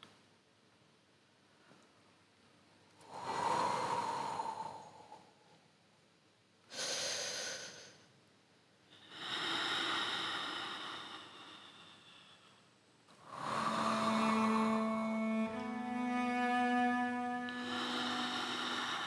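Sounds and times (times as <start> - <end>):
breathy swells of sound: 3.0 - 5.6, 9.0 - 19.0.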